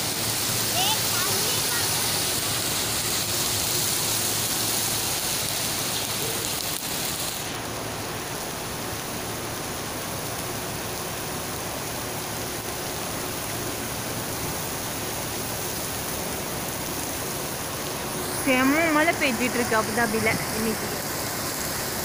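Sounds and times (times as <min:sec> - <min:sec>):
heavy rain falling: 0:00.0 - 0:22.0.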